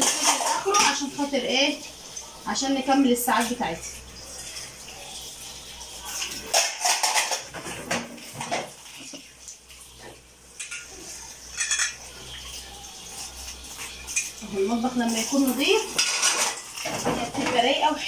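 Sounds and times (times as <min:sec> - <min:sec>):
dishes clattering in metal sink: 0:00.0 - 0:01.6, 0:05.9 - 0:09.3, 0:09.9 - 0:18.0.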